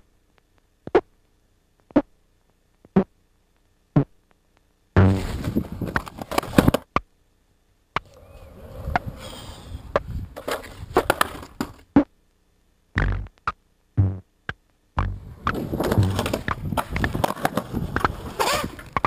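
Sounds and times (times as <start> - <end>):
skateboard rolling on concrete: 5.1 - 6.8, 8.0 - 11.8, 15.1 - 19.0
low thuds: 15.0 - 18.3
skateboard knocks: 15.4 - 19.0.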